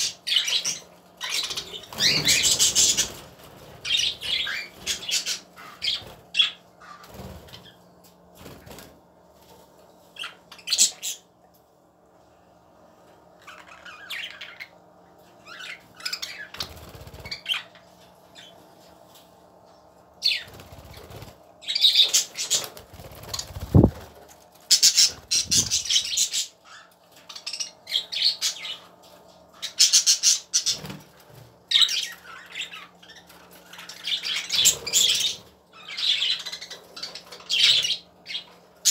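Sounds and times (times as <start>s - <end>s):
budgerigars chattering and squawking: 0.0s - 7.8s, 24.7s - 28.8s, 31.7s - 38.9s
wings fluttering: 0.6s - 10.3s, 16.2s - 17.8s, 20.2s - 26.4s, 29.8s - 35.4s.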